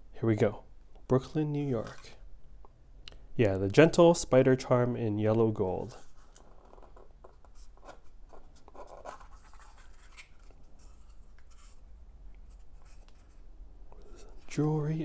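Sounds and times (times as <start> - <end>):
scratchy rubbing of cardboard: 5.9 - 11.9.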